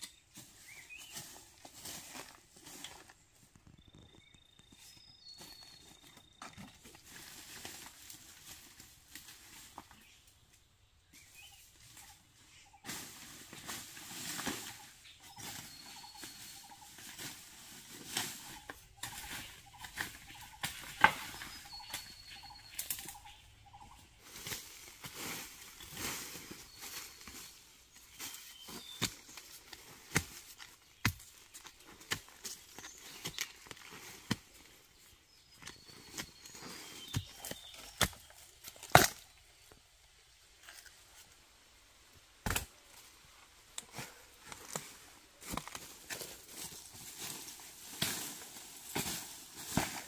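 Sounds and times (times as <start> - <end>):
bird chirping: 0.0 - 8.4, 9.6 - 12.9, 14.2 - 39.8
bamboo leaves crackling: 12.7 - 34.7, 35.4 - 39.4, 43.7 - 50.0.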